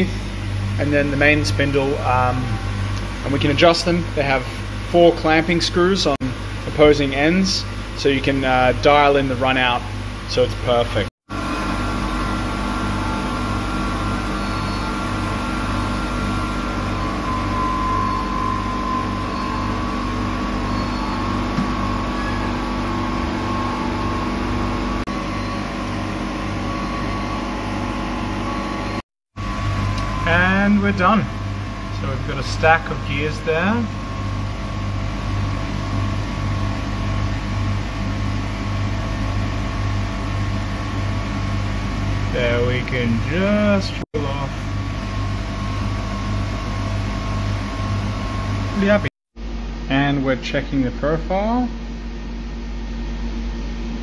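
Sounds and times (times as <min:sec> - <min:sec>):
faint high whine: 0:00.0 - 0:10.4, 0:11.4 - 0:34.3
machine hum: 0:00.0 - 0:54.0
pulsing low hum: 0:11.3 - 0:43.4.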